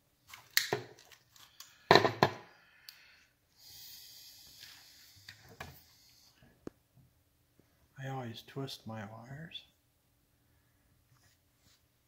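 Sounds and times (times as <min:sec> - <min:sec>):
soft steady rustle: 0:10.3 - 0:12.0.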